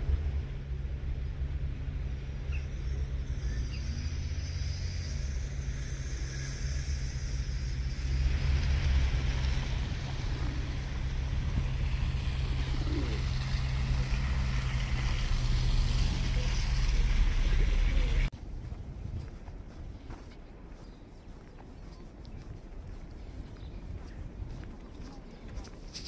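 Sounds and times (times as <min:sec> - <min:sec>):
low outdoor rumble: 0:00.0 - 0:26.0.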